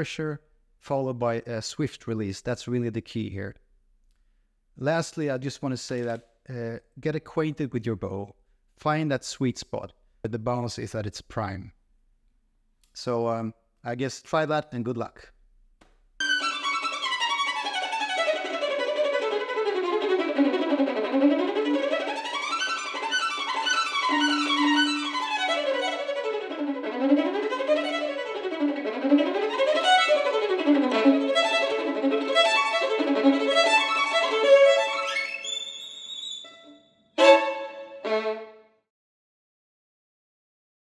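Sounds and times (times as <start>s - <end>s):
violin spiccato scales: 16.2s - 38.8s.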